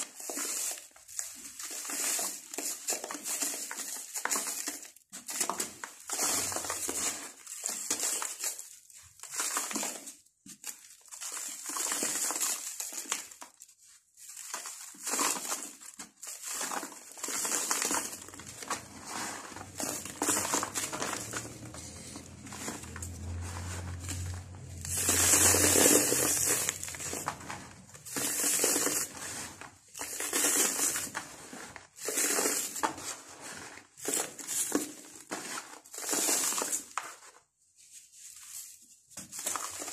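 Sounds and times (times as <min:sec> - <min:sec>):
dry sand mix crumbling by hand: 0:17.4 - 0:34.2.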